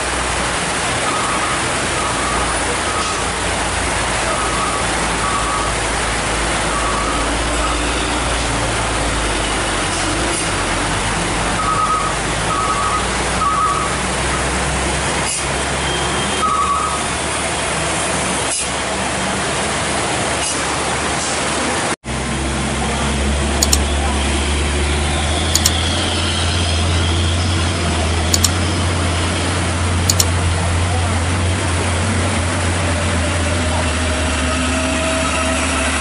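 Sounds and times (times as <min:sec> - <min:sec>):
truck engine rumble: 0:00.0 - 0:15.8, 0:16.5 - 0:36.0
rain and running water hiss: 0:00.0 - 0:25.1, 0:26.6 - 0:35.7
high electronic beeping: 0:23.6 - 0:23.8, 0:25.6 - 0:25.8, 0:28.3 - 0:28.6.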